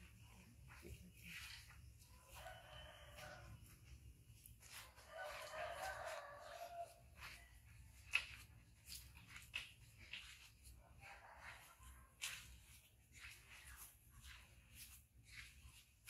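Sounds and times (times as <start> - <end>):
light scuffs and clicks: 0.0 - 16.0
rooster crowing: 2.2 - 3.7, 5.0 - 7.0.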